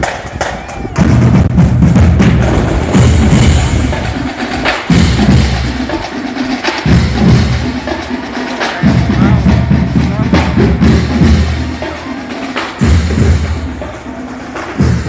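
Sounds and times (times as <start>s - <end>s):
bass drums beating: 0.0s - 15.0s
snare drum: 0.0s - 15.0s.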